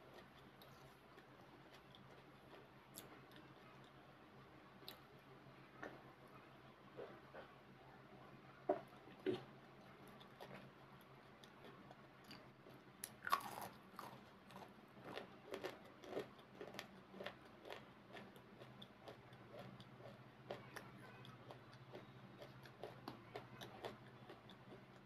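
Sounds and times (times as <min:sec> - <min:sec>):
wet chewing clicks and smacks: 0:08.9 - 0:25.0.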